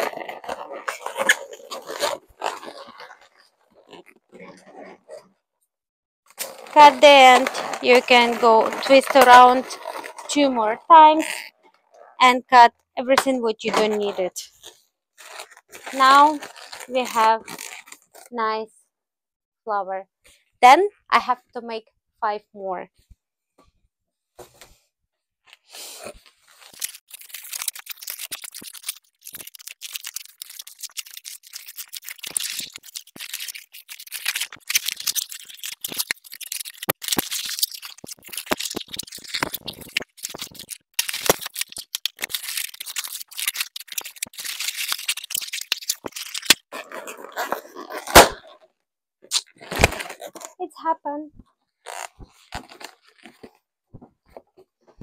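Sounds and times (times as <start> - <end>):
balloons squeaking and rubbing: 0.0 - 5.2, 6.3 - 12.3, 13.8 - 18.4, 25.9 - 48.5, 51.8 - 53.4
balloon popping: 6.3 - 11.5, 26.6 - 46.7, 47.4 - 48.5, 49.3 - 50.4.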